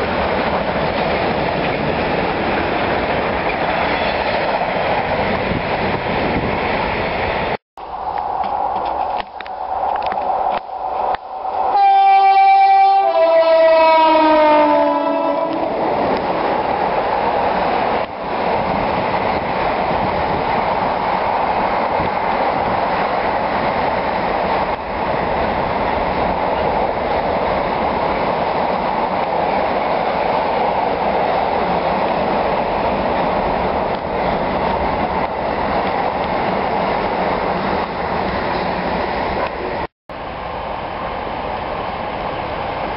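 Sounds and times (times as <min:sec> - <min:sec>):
train rumbling and rattling: 0:00.0 - 0:42.9
train horn: 0:11.7 - 0:15.8.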